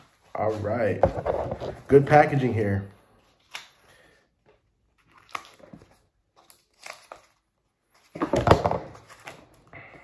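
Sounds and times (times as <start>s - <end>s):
plastic wrapping crinkling tear: 5.0s - 8.2s.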